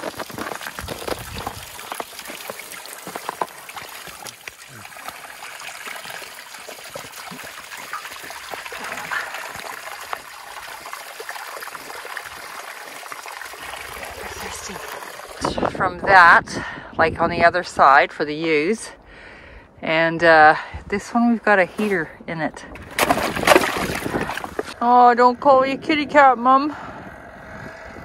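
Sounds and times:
water trickling from a hose: 0.0 - 15.7
knocks and splashes: 0.0 - 15.8, 22.8 - 24.8.

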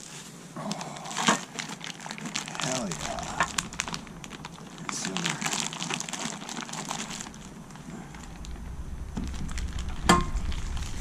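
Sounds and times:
plastic wrapping crinkling: 0.0 - 11.0
low rumble: 2.3 - 11.0.

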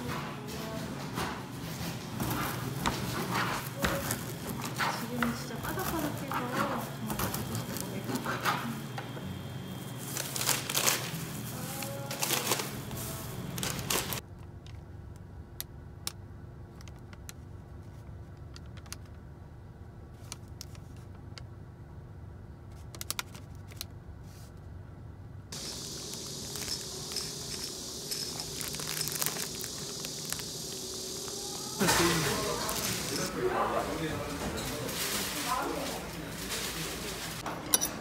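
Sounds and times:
steady low hum: 0.0 - 34.4
paper crinkling: 9.8 - 14.2, 25.6 - 37.4.

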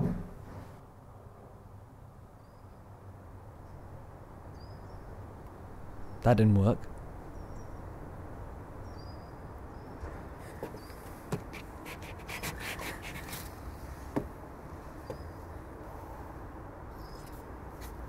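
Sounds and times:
shoe stamping on wooden decking: 10.6 - 11.7, 14.1 - 14.4, 15.0 - 15.3
faint bird chirps: 16.9 - 17.4.

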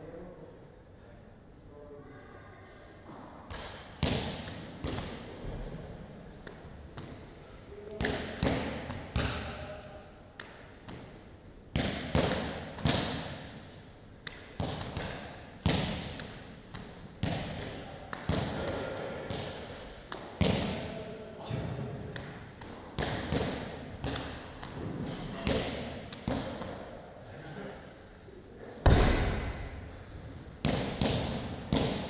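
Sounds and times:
medicine ball thuds and slaps: 3.5 - 5.6, 7.9 - 9.7, 11.7 - 13.5, 14.2 - 20.9, 23.0 - 26.8, 28.8 - 29.9, 30.6 - 32.0.

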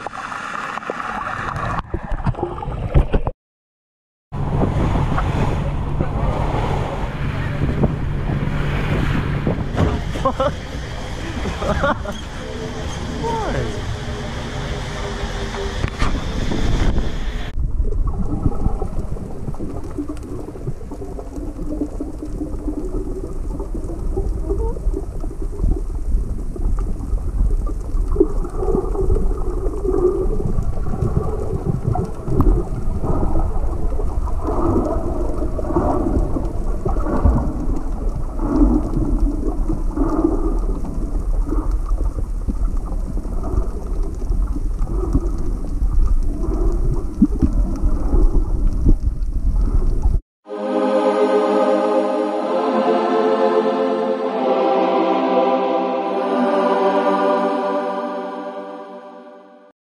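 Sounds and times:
underwater rumble of moving water: 4.4 - 50.2
dull wavering underwater sounds: 4.4 - 59.0.

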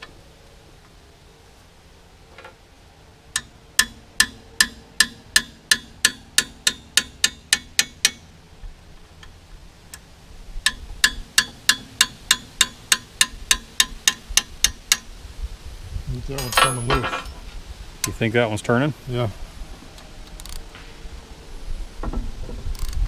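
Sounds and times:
hammer tapping metal wrench: 3.4 - 8.2, 10.7 - 15.1.

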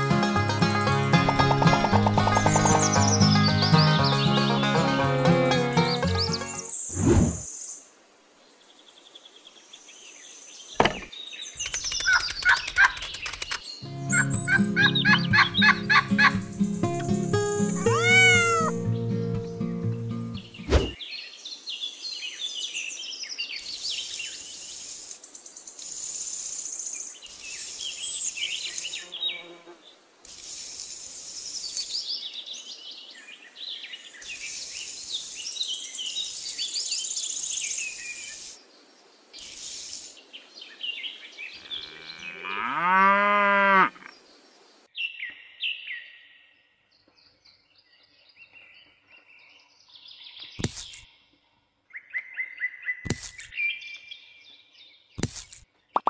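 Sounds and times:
birds chirping: 1.1 - 7.8, 10.2 - 29.5
cow mooing: 41.6 - 44.1.

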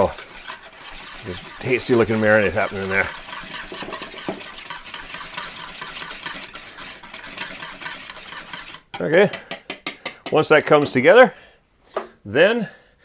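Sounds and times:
whisk swishing through liquid: 0.0 - 9.0.

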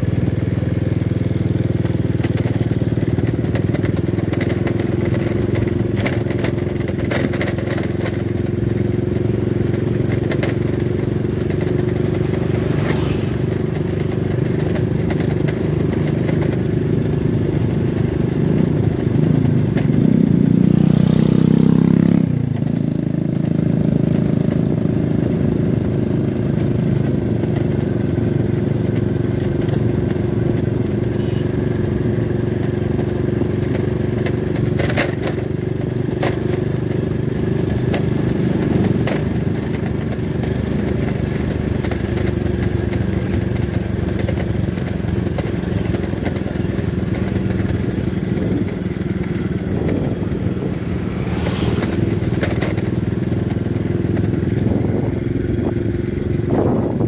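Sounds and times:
clatter: 0.0 - 57.0
motorcycle engine running: 0.0 - 57.0
motorcycle passing by: 0.0 - 57.0
rushing wind: 46.9 - 57.0.

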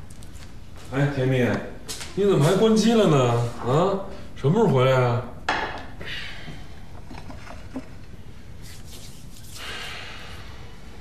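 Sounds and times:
soft hiss: 8.4 - 11.0.

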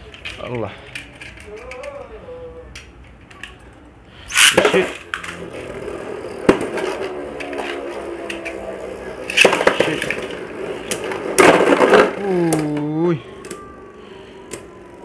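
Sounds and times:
launcher zipping: 4.3 - 5.0
spinning top landing: 4.3 - 13.6.

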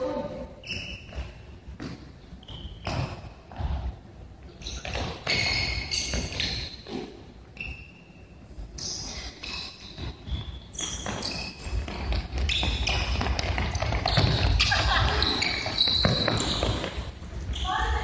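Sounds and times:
shoes squeaking on court: 0.6 - 18.0
ball kicked and bouncing on wood: 11.0 - 14.8.

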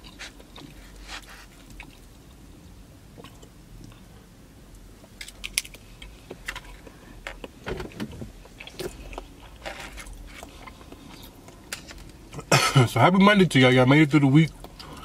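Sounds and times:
person chewing: 0.0 - 2.4, 8.4 - 12.0.

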